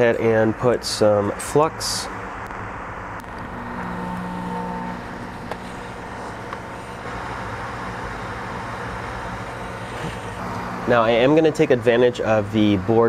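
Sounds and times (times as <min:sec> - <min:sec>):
low hum: 0:02.1 - 0:11.8
hot-air blower hissing: 0:02.1 - 0:13.0.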